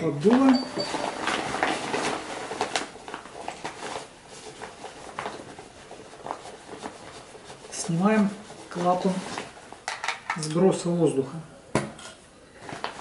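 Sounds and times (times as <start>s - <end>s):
fabric rustling: 0.1s - 9.9s.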